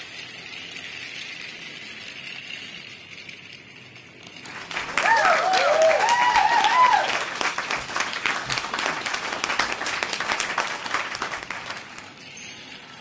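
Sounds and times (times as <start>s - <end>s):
applause: 4.4s - 12.2s
children cheering: 4.5s - 12.1s.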